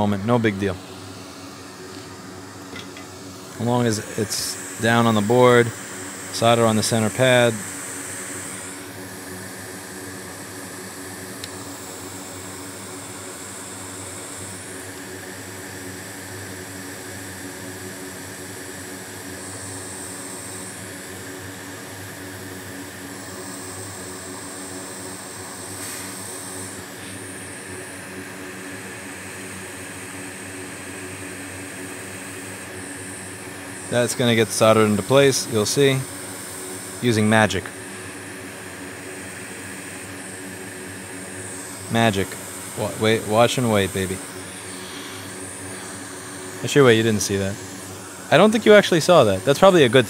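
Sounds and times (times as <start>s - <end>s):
fan whir: 0.0s - 50.0s
rush of hot air: 1.8s - 10.2s, 25.6s - 28.4s, 32.0s - 50.0s.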